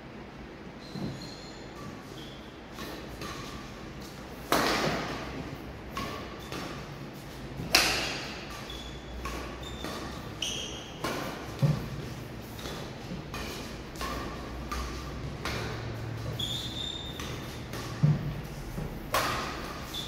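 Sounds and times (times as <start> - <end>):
shoes squeaking on court: 0.8 - 5.3, 5.9 - 20.0
racket hitting shuttlecock: 2.7 - 20.0.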